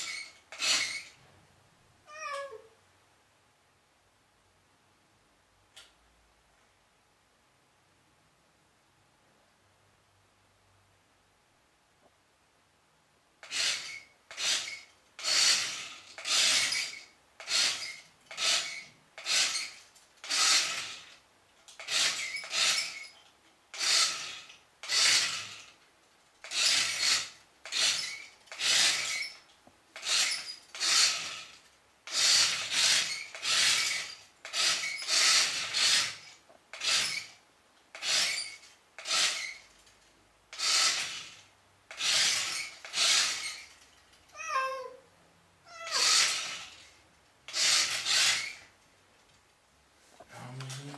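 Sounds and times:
cat hissing: 45.7 - 48.6.

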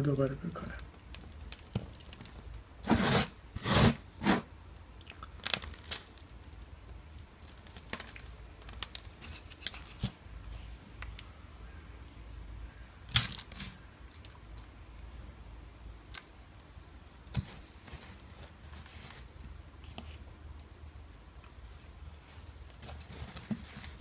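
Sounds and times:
soil crumbling and rustling: 5.2 - 6.7.

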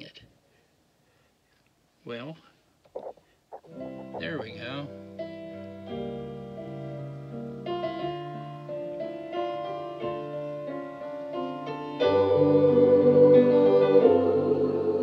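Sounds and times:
piano chords: 3.6 - 15.0
choir singing: 12.0 - 15.0.

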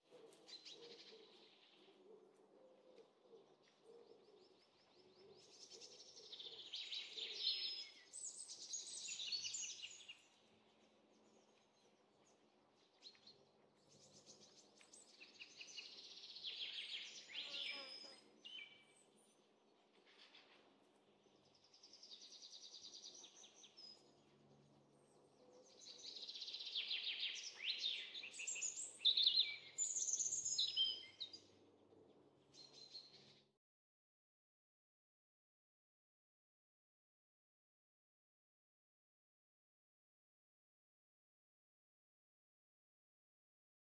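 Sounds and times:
songbirds chirping and trilling: 0.0 - 33.6.

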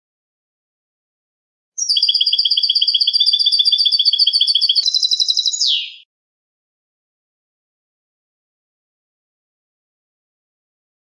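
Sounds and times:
goldfinch singing trill: 1.8 - 6.0.

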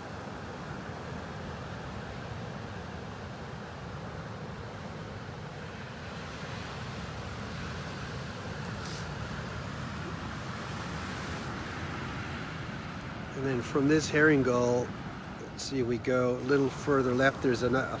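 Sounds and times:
broad hiss: 8.6 - 9.5.

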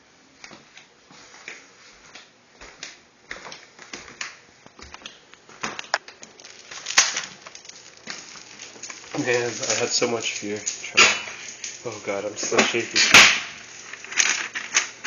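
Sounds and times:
footsteps on hard floor: 0.4 - 4.2.

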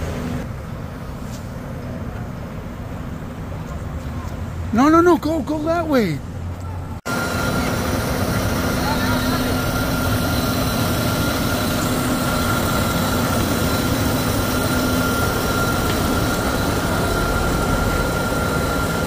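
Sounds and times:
diesel engine running: 5.9 - 19.0
high whine: 6.6 - 19.0.

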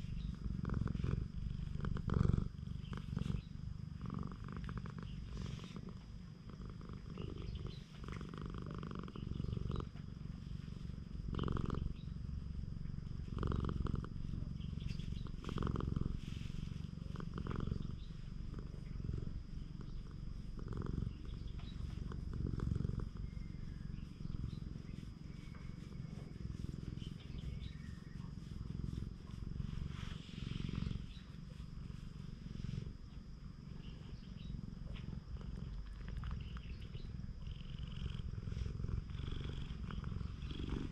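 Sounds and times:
cat purring: 0.0 - 40.9
hand rustling on fur: 14.9 - 18.2, 23.7 - 33.2.

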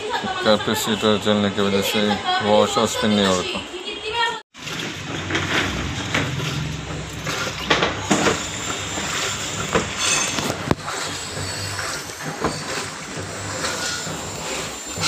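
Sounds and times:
water churning in tub: 4.5 - 15.0
washing machine knocks: 4.6 - 11.2
washing machine motor humming: 4.6 - 15.0.

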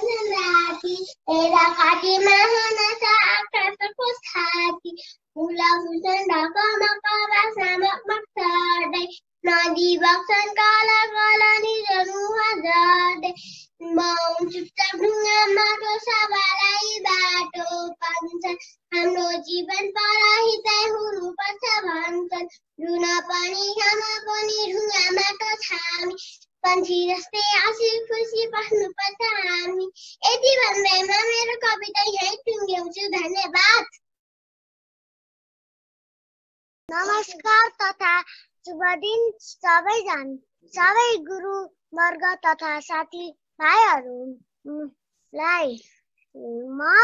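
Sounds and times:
girl singing: 0.0 - 33.9, 36.9 - 45.8, 46.4 - 47.0
girl breathing: 13.4 - 13.8.

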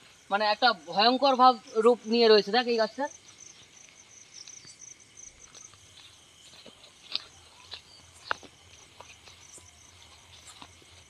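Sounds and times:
crickets chirping: 0.0 - 11.0
sharp snaps and crackles: 5.4 - 9.4.

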